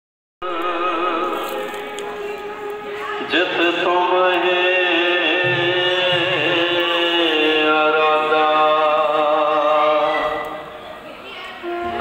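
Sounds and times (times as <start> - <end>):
chant-like singing voice: 0.4 - 10.8.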